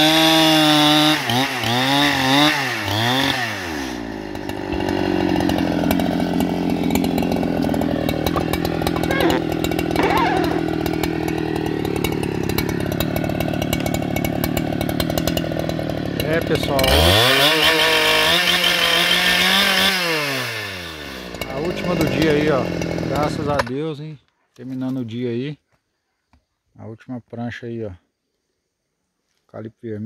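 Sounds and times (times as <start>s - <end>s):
chainsaw revving high: 0.0s - 23.6s
chainsaw idling: 0.0s - 23.7s.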